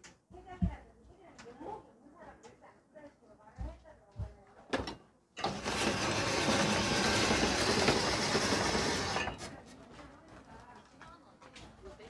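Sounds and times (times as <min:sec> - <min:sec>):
ice shaving machine scraping: 0:05.4 - 0:09.6.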